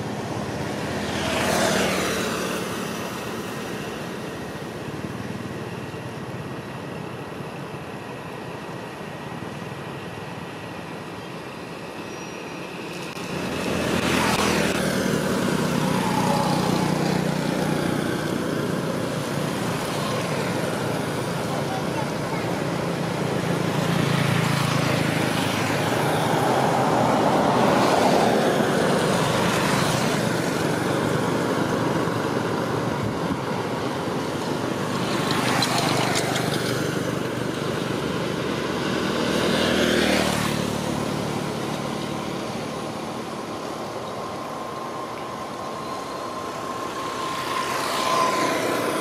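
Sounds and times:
motor vehicles passing: 0.0 - 7.0, 12.6 - 49.0.

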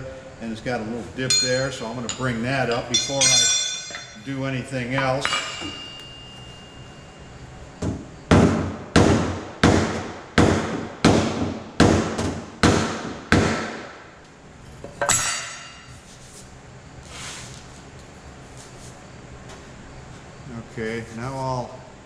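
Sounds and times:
sharp ringing knock: 5.0 - 7.1.

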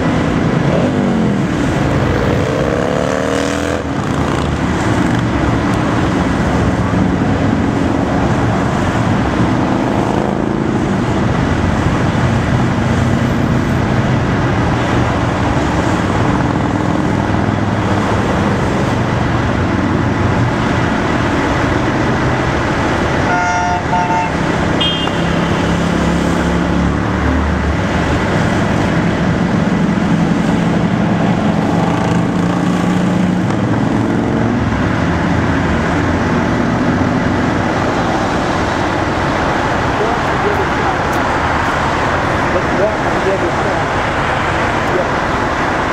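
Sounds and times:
cars and trucks passing: 0.0 - 45.9
motorcycle engines droning: 0.0 - 45.9
vehicle horn toots: 23.2 - 25.6.

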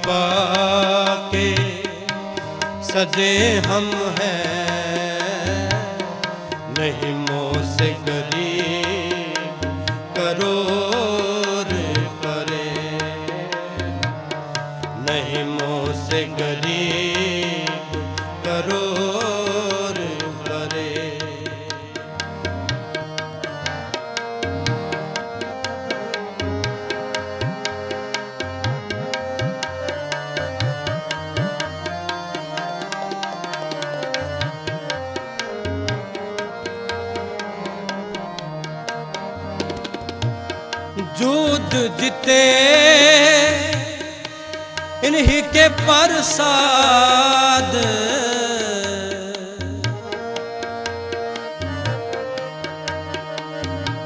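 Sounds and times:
tabla strokes: 0.0 - 46.4
harmonium chords and melody: 0.0 - 54.0
person singing: 41.0 - 49.7.

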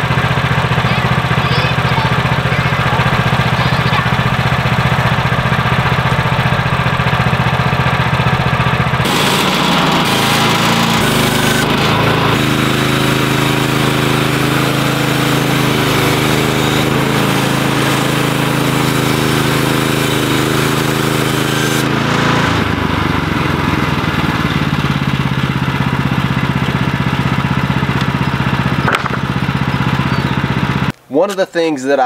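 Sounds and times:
gas engine running: 0.0 - 30.9
bandsaw blade cutting log hiss: 9.0 - 22.6.

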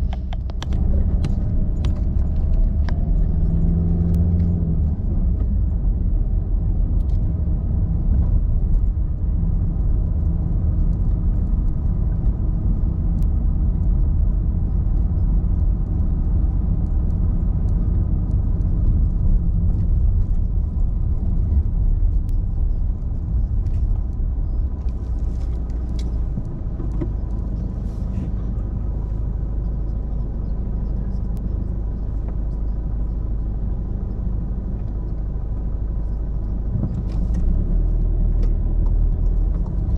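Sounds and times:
car engine and road rumble: 0.0 - 39.9.

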